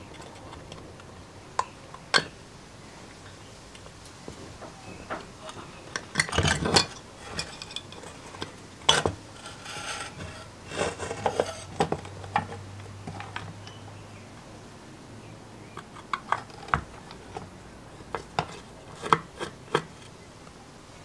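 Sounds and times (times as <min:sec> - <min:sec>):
small metal clicks and scrapes: 0:00.0 - 0:02.3, 0:05.1 - 0:13.8, 0:15.8 - 0:17.5, 0:18.1 - 0:20.2.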